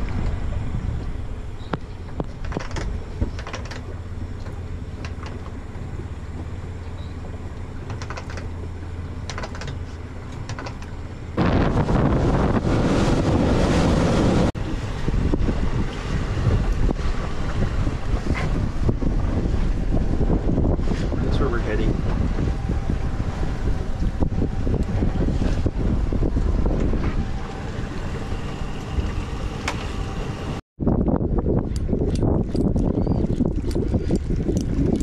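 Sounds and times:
wind buffeting microphone: 0.0 - 7.4, 11.3 - 35.0
rushing water: 0.0 - 8.4
boat engine running: 0.0 - 35.0.

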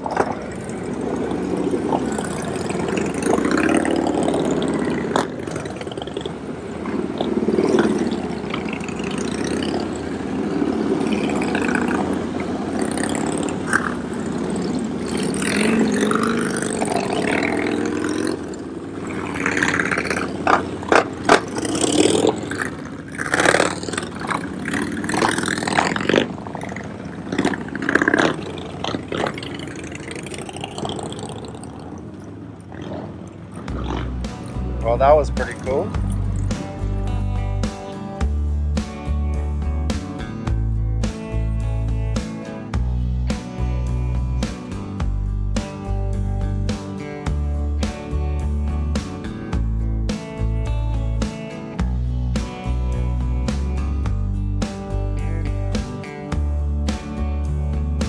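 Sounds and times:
vehicle engines revving: 0.0 - 58.0
sharp cracks: 11.0 - 34.6.

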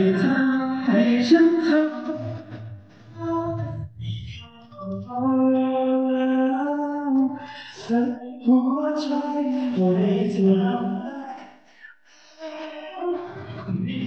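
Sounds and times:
men singing into microphones: 0.0 - 2.7, 3.6 - 11.5.

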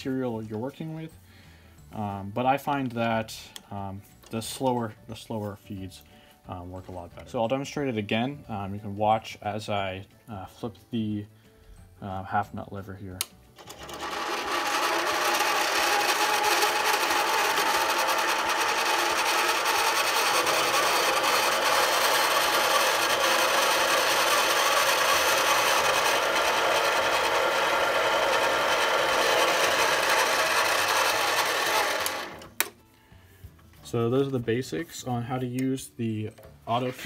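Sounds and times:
lathe motor whirring: 13.6 - 32.7.

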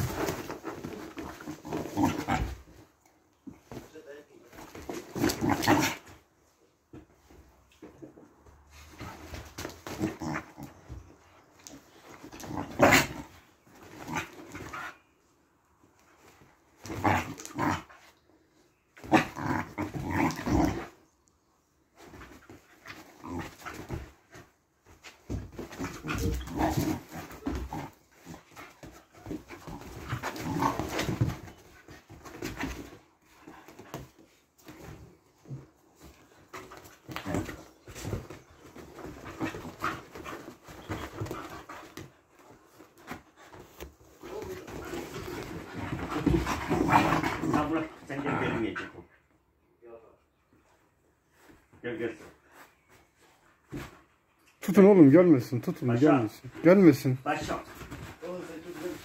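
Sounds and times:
puppies play-fighting: 0.0 - 3.9, 4.5 - 49.6, 55.7 - 59.0
puppies growling: 25.5 - 31.6, 42.9 - 49.1.

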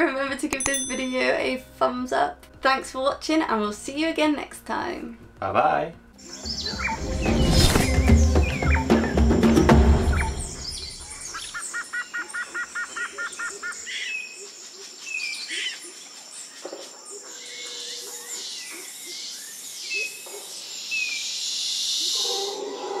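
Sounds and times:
birds calling: 6.2 - 23.0.

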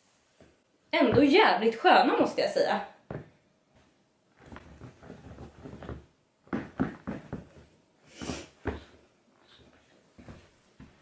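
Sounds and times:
boot heel knocks on tiles: 3.1 - 3.4, 4.4 - 7.6, 8.6 - 9.0
boots shuffling on tiled floor: 3.8 - 11.0.

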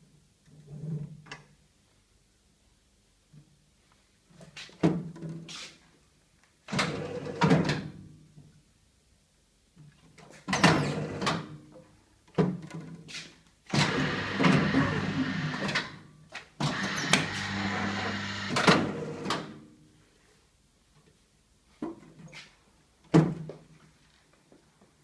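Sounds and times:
paper cutter drive humming: 16.7 - 19.4.

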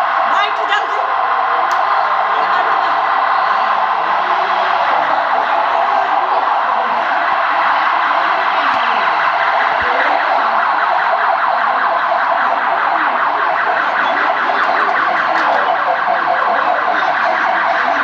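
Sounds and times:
siren wailing: 0.0 - 18.0.

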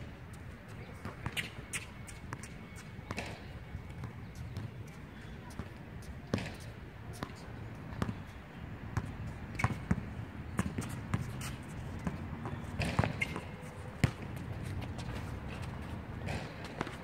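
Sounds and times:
sneakers shuffling on court: 9.0 - 17.0
basketball bouncing on hard court: 12.0 - 14.4.

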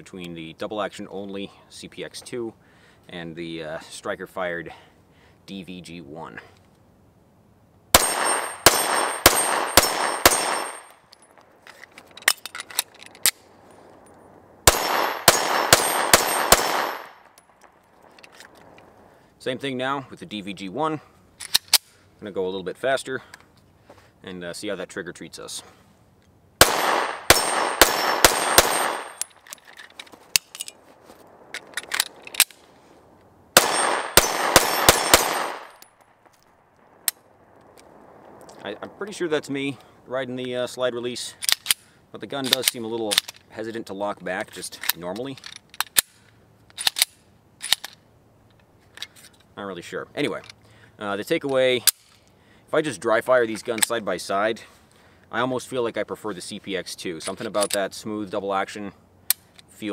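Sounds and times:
pistol shots: 8.0 - 11.0, 14.6 - 17.3, 26.6 - 29.3, 33.6 - 35.8
magazine change clicks: 8.0 - 18.9, 21.4 - 22.0, 26.6 - 32.7, 41.4 - 43.5, 44.8 - 49.3
light metallic clicks of pistol: 21.4 - 22.0, 41.4 - 43.5, 44.8 - 49.5, 59.3 - 59.7.

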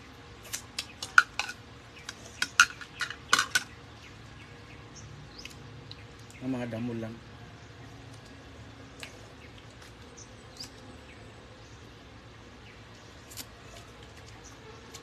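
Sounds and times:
steady low hum: 0.0 - 15.0
chirps: 1.9 - 6.8.

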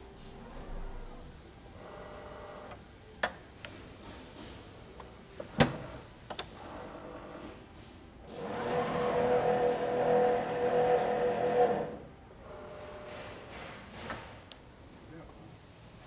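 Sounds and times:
machine whir: 8.2 - 14.0
machine humming: 8.4 - 13.4.

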